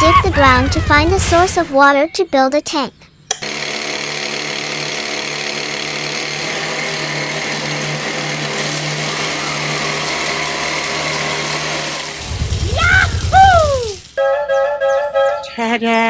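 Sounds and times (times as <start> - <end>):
electric motor whirring: 3.3 - 14.2.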